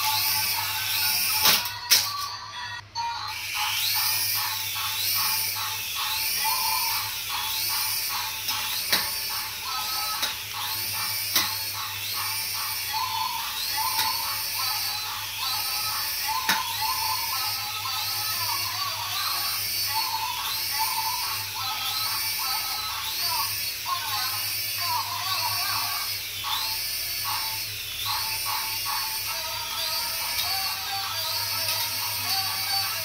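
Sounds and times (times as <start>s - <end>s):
toy helicopter rotor buzzing: 0.0s - 33.0s.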